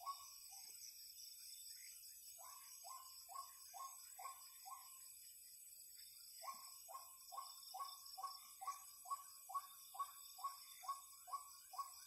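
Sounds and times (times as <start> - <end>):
insect hiss: 0.0 - 12.0.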